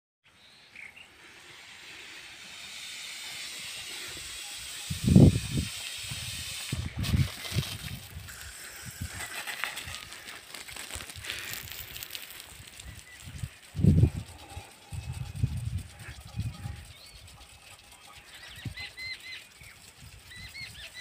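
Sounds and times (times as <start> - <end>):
irrigation sprinklers hissing: 0.4 - 21.0.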